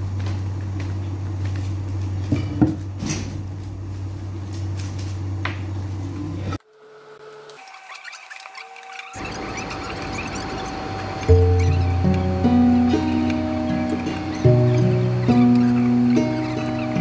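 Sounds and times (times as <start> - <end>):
steady low hum: 0.0 - 7.3, 9.1 - 17.0
faint music: 9.1 - 17.0.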